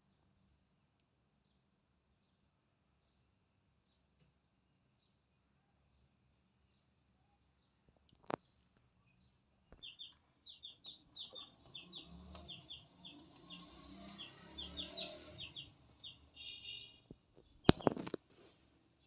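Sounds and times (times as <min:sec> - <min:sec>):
chicks peeping: 0:09.7 - 0:18.1.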